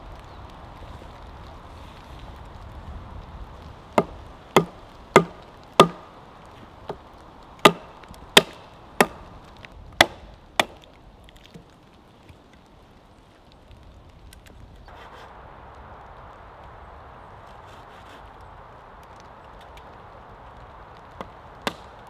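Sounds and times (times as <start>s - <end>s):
axe chopping into a log: 4.0s - 6.0s, 7.6s - 9.2s, 10.0s - 10.8s.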